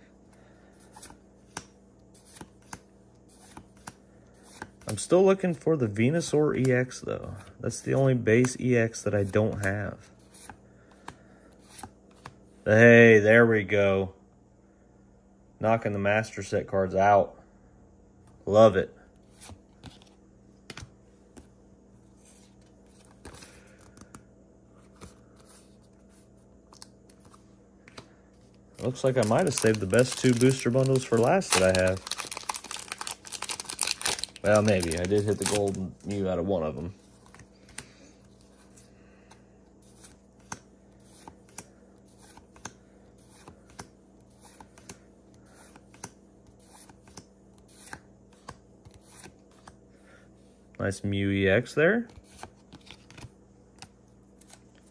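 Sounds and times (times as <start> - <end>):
low steady hum: 0.0 - 54.9
cards flipping clicks and slides: 0.8 - 5.0, 37.1 - 49.8, 52.1 - 54.9.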